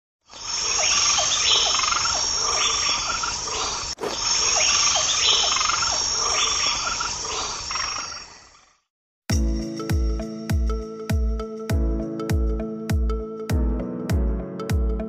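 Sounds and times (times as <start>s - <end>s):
high insect trill: 0.3s - 8.7s
frog-like calls: 0.4s - 8.9s.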